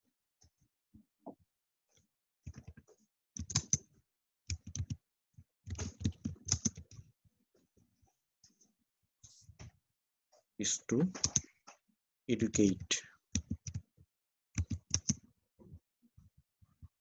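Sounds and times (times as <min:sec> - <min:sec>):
computer keyboard typing: 0:03.4 - 0:03.8, 0:04.5 - 0:05.0, 0:05.7 - 0:06.9, 0:11.1 - 0:11.4, 0:12.5 - 0:13.8, 0:14.6 - 0:15.2.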